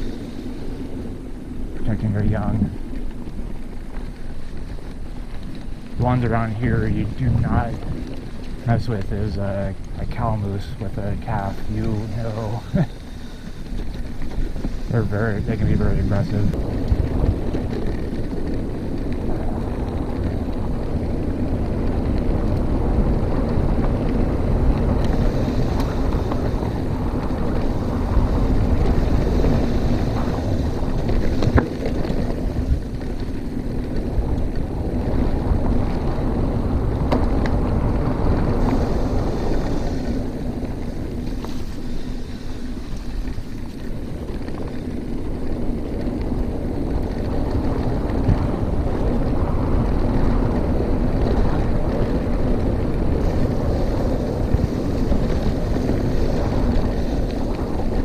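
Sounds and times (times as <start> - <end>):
bike tyre and drivetrain noise: 0.0 - 58.0
wind rumbling on microphone: 0.0 - 58.0
bike knocking over bumps: 16.0 - 58.0.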